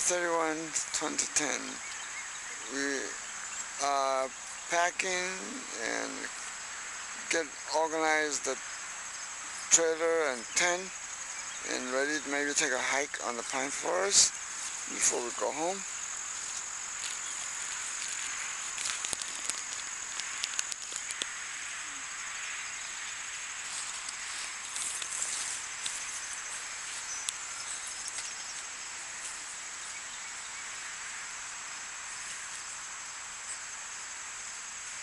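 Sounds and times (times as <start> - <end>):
insect chorus: 0.0 - 35.0
soft hiss: 0.0 - 35.0
sharp clicks: 17.4 - 21.3.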